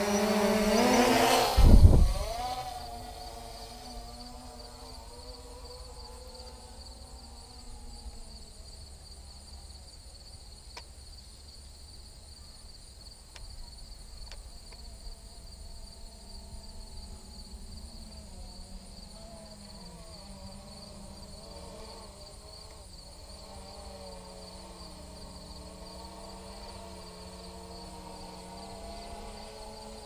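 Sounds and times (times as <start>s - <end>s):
faint wavering hum: 0.0s - 30.0s
high-pitched insect chorus: 0.0s - 30.0s
wind rumbling on microphone: 0.5s - 4.2s.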